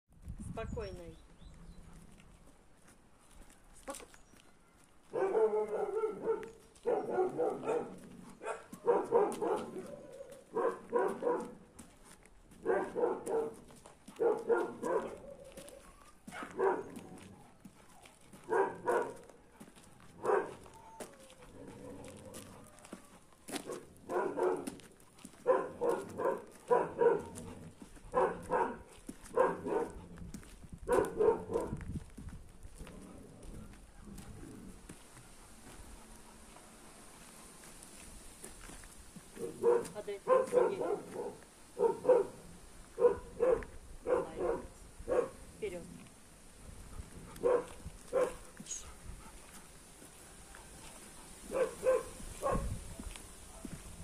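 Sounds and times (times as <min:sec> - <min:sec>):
dog barking: 0:05.1 - 0:11.6, 0:12.6 - 0:17.2, 0:18.4 - 0:19.4, 0:20.2 - 0:21.0, 0:23.6 - 0:24.8, 0:25.4 - 0:27.4, 0:28.1 - 0:30.0, 0:30.9 - 0:31.8, 0:39.4 - 0:45.4, 0:47.4 - 0:49.0, 0:51.5 - 0:53.8.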